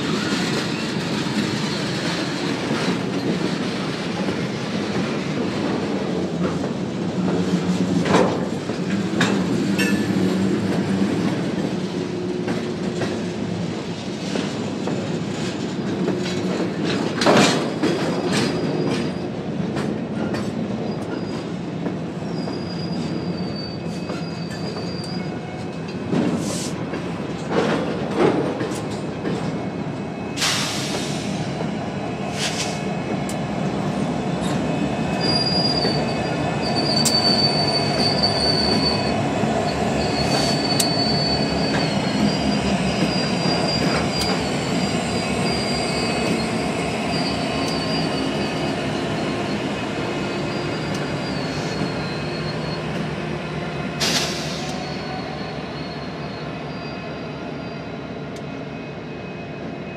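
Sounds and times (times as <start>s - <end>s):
freight train rumbling: 0.0s - 59.9s
high wheel squeal: 20.9s - 25.8s, 34.4s - 53.2s, 54.0s - 59.9s.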